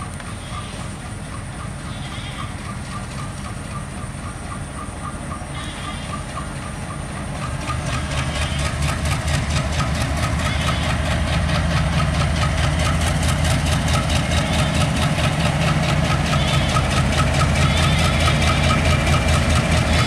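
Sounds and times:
diesel locomotive engine droning: 0:00.0 - 0:20.0
rhythmic wheel clatter: 0:00.0 - 0:20.0.

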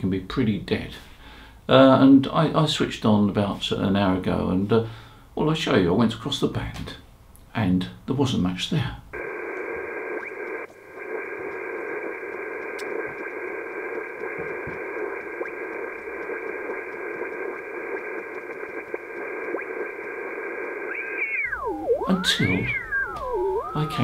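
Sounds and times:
faint sliding radio whistle: 0:09.2 - 0:18.6, 0:19.2 - 0:24.0
radio band noise hiss: 0:09.2 - 0:24.0.

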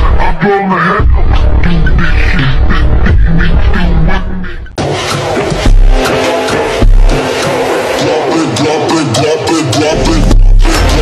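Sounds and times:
background music: 0:00.0 - 0:11.0
deep bass hit: 0:05.5 - 0:06.0, 0:06.7 - 0:07.3.

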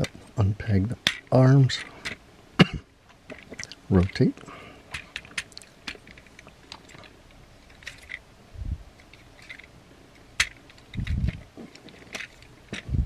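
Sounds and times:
plastic toy joints clicking: 0:01.0 - 0:02.2, 0:07.7 - 0:08.2, 0:09.0 - 0:13.0.

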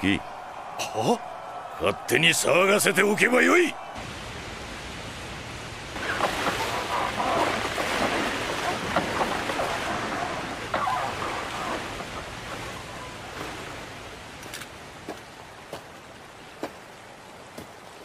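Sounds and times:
river water sloshing and splashing: 0:04.0 - 0:18.0.

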